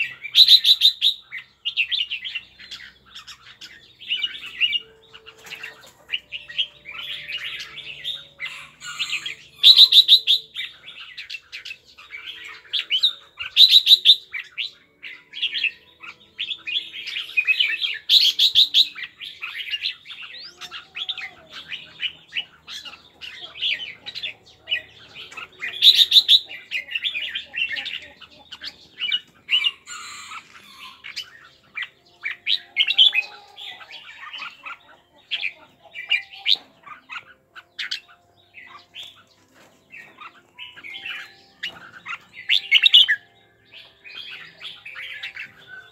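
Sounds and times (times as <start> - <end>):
bird chattering calls: 7.1 - 10.6, 12.8 - 14.3, 25.2 - 39.2.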